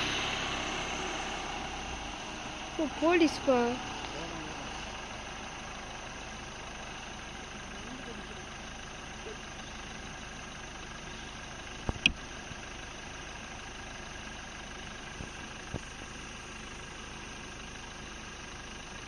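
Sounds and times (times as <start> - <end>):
vehicle engine idling: 0.0 - 19.0
sharp clicks: 11.9 - 12.2.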